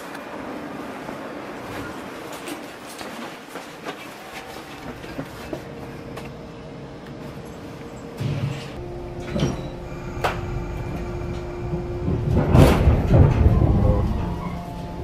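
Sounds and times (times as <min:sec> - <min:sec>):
train doors sliding shut: 0:08.2 - 0:15.0.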